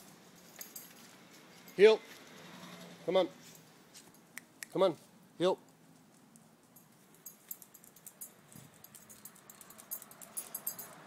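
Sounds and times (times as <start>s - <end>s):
tags jingling: 0.0s - 2.0s, 6.5s - 11.0s.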